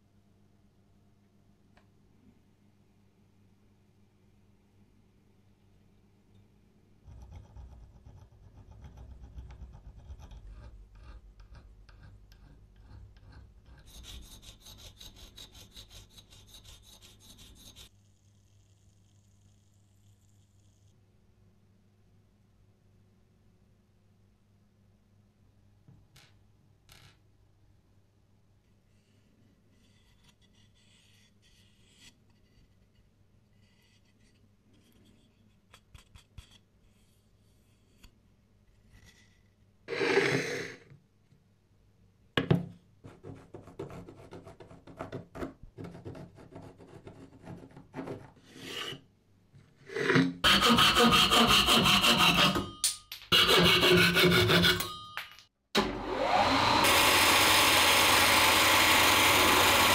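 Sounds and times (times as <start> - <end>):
scribe scratching wood: 7.1 - 19.1, 29.7 - 34.4, 50.4 - 54.9
loud scrape on wood: 39.9 - 40.9, 48.0 - 49.1, 49.9 - 54.9
sanding drum on wood: 50.4 - 52.6, 53.4 - 54.8.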